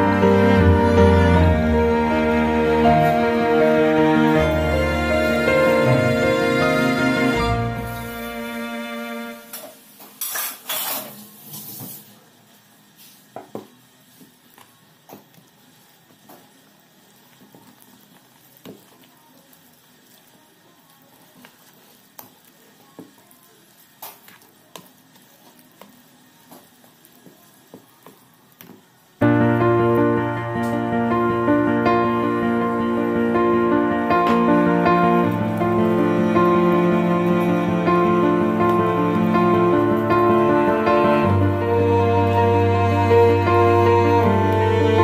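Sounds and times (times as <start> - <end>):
wire whisk stirring batter: 21.1 - 28.8
whisk wires tapping bowl: 24.0 - 28.9.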